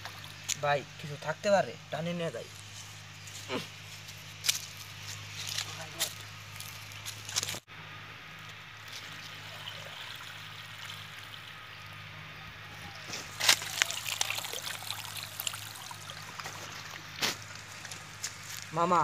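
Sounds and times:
patter of small splashes: 0.0 - 0.6, 8.8 - 12.0, 12.9 - 18.7
water pouring and splashing: 0.0 - 0.6, 8.8 - 11.7, 13.0 - 18.4.

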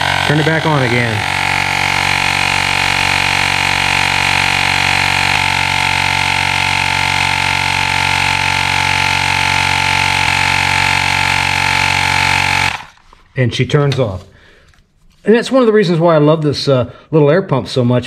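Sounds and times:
tire inflator humming: 0.0 - 13.3.

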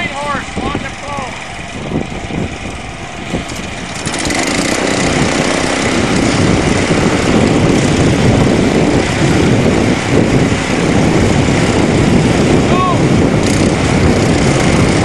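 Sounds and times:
small tractor engines under load: 0.0 - 15.0.

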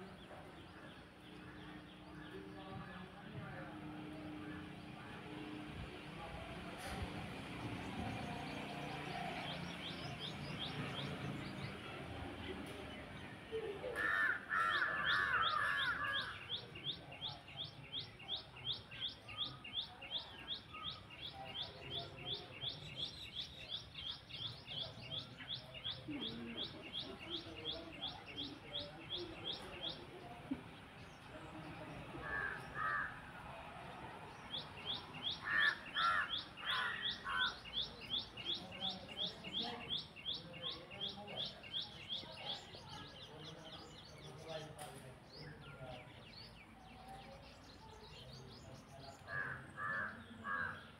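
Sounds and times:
crow cawing: 14.0 - 16.4, 32.2 - 33.2, 35.4 - 37.6, 49.3 - 50.8.

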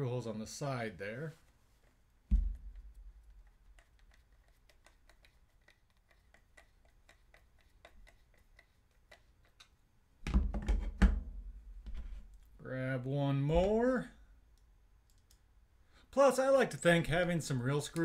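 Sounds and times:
thump: 2.3 - 2.7.

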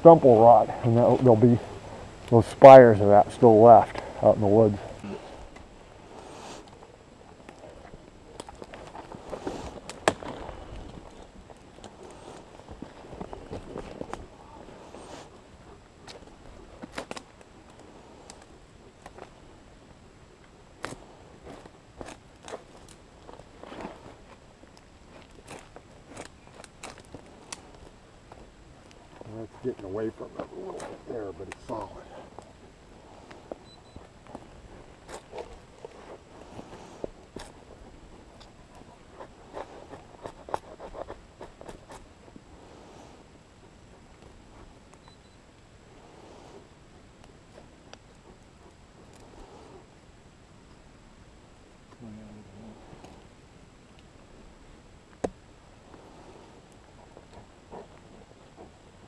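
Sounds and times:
wood snapping and cracking: 6.7 - 14.2, 16.0 - 19.3, 20.8 - 29.4.

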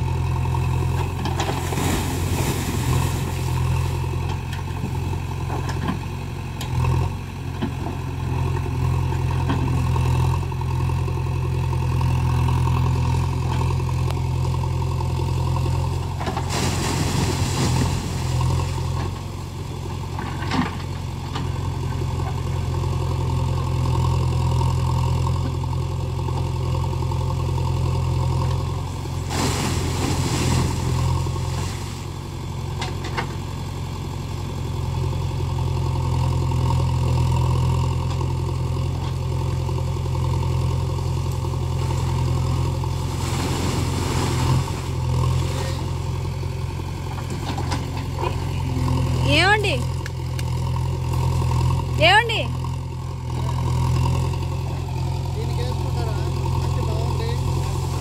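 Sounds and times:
diesel engine running: 0.0 - 58.0
hydraulic arm digging: 0.9 - 8.0, 29.1 - 33.4, 41.2 - 52.0.

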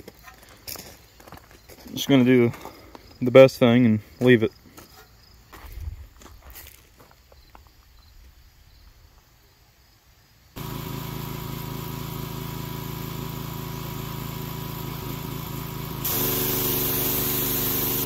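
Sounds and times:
faint crickets: 0.0 - 10.6
pressure washer engine: 10.6 - 18.0
hissing water jet: 16.0 - 18.0.

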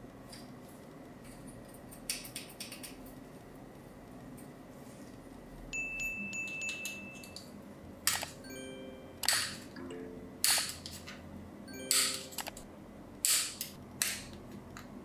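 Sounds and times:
chime-like background music: 5.8 - 7.4, 8.4 - 10.4, 11.7 - 12.4.

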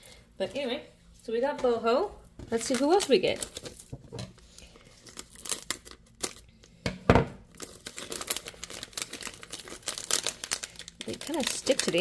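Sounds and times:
foil crinkling: 2.5 - 6.5, 7.5 - 12.0
scissors cutting foil packet: 2.6 - 3.9, 5.0 - 6.5, 7.5 - 12.0.

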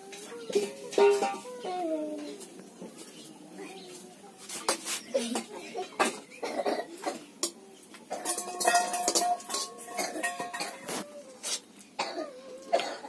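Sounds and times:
steel spoon clinking on plate: 8.1 - 11.0.

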